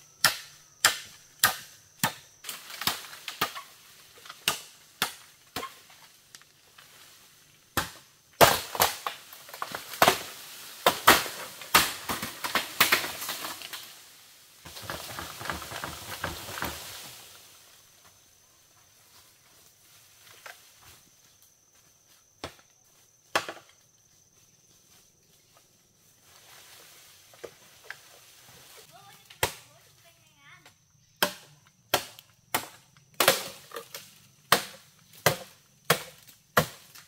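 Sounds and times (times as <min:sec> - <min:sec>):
blade chopping wood: 0:31.2 - 0:37.0.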